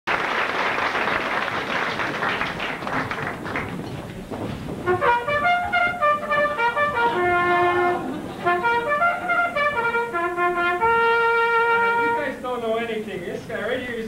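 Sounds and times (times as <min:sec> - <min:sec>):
audience clapping: 0:00.0 - 0:05.4
brass-led band music: 0:04.7 - 0:12.6.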